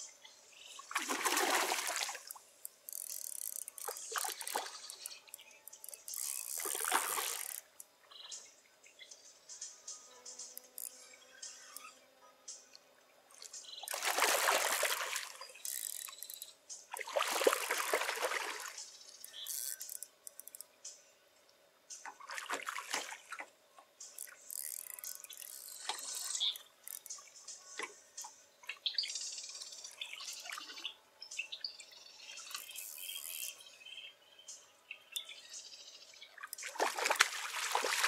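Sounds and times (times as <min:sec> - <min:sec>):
fish thrashing and splashing: 0:00.9 - 0:02.3, 0:06.2 - 0:07.6, 0:13.9 - 0:15.4, 0:17.0 - 0:18.8, 0:36.6 - 0:38.0.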